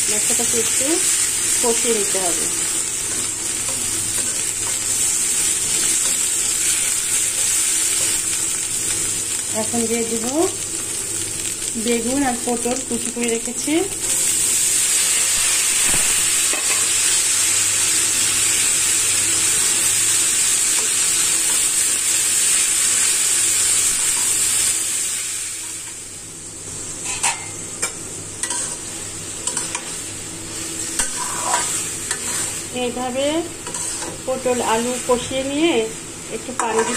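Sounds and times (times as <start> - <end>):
vegetables sizzling in hot oil: 0.0 - 36.9
spatula scraping a pan: 28.4 - 28.8, 31.0 - 32.7, 33.6 - 34.2, 36.6 - 36.9.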